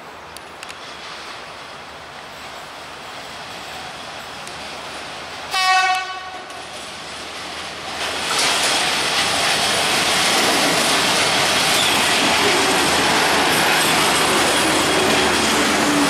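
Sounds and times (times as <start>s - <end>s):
diesel railcar running past: 0.0s - 16.0s
train horn blast: 5.5s - 6.5s.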